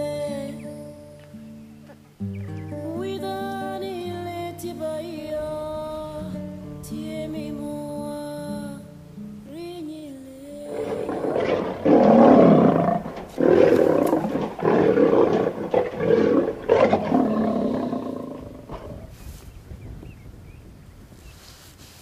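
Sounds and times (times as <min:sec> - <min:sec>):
large animal roaring: 0:10.7 - 0:19.1.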